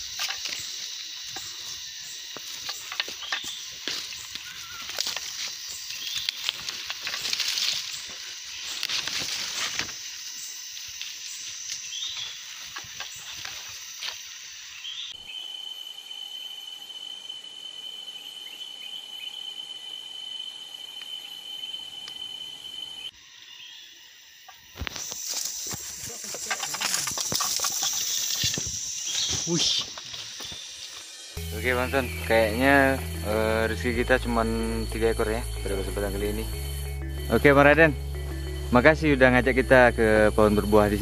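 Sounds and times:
high-pitched insect drone: 0:00.0 - 0:41.0
rustling and knocks: 0:25.7 - 0:30.2.

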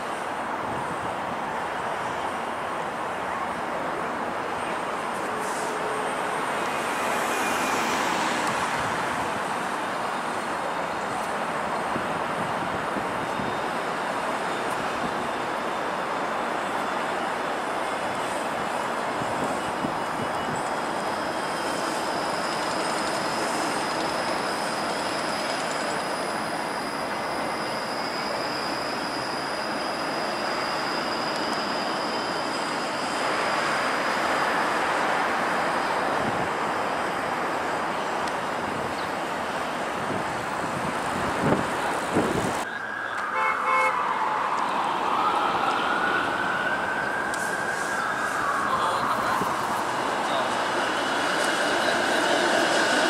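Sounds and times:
city traffic noise: 0:00.0 - 0:53.0
steady high whine: 0:00.0 - 0:53.0
streetcar running: 0:00.0 - 0:53.0
siren wailing: 0:40.4 - 0:53.0.

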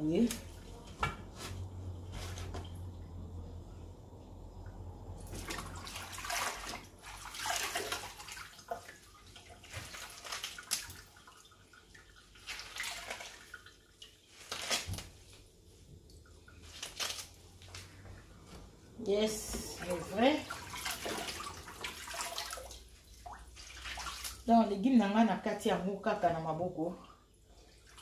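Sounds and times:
water splashing in a bowl: 0:05.1 - 0:15.3, 0:19.6 - 0:24.8.

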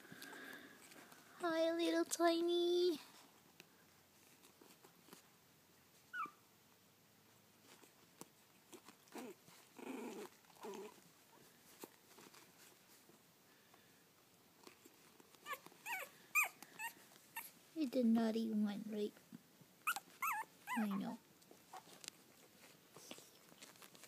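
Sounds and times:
puppies whimpering and squeaking: 0:06.2 - 0:06.4, 0:15.4 - 0:17.6, 0:19.8 - 0:21.9.

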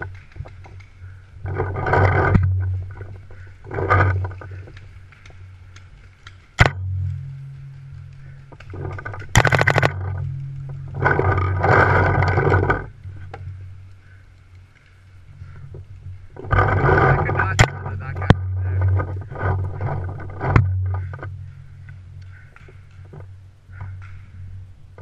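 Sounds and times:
low hum: 0:00.0 - 0:25.0
sharp knocks: 0:06.6 - 0:07.0, 0:16.5 - 0:21.3.

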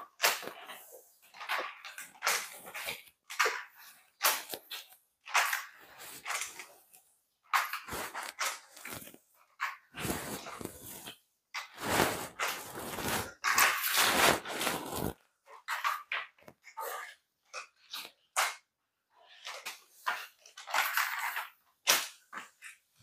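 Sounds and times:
mop swishing on wet tiles: 0:00.0 - 0:18.2.

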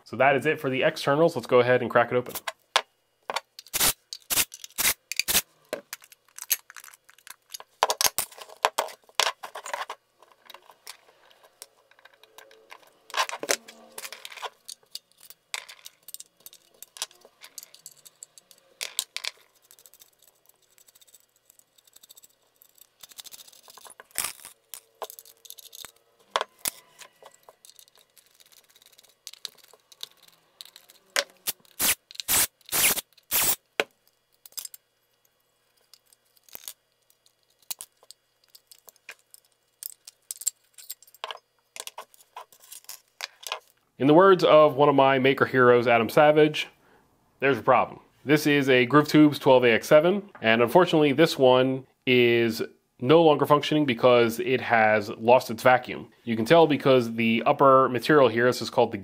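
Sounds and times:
screws and metal enclosure clinking: 0:03.5 - 0:33.6, 0:34.3 - 0:43.7.

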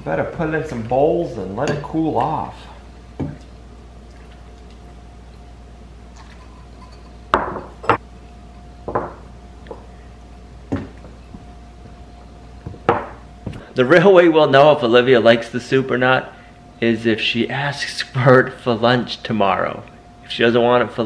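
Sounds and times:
ladle clinking against pot and bowls: 0:06.2 - 0:08.0.

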